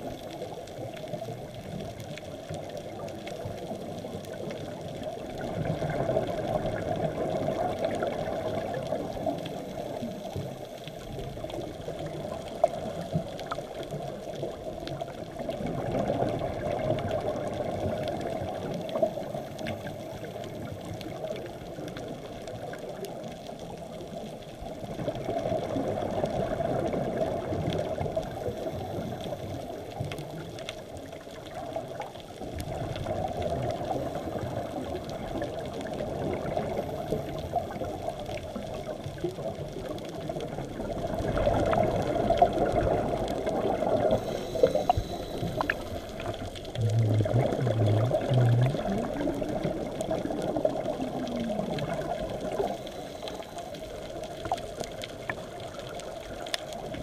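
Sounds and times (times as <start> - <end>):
faint reef crackling: 0.0 - 57.0
muffled underwater noise: 0.0 - 57.0
regulator exhaling bubbles: 41.2 - 53.3.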